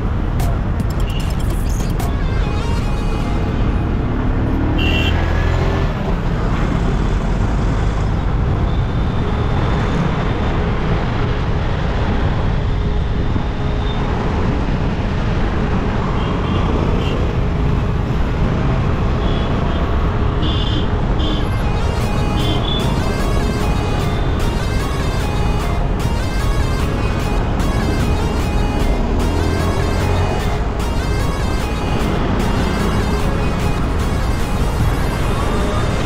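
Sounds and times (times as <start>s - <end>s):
city traffic road noise: 0.0s - 36.0s
car horn toots: 4.7s - 5.6s, 20.4s - 35.8s.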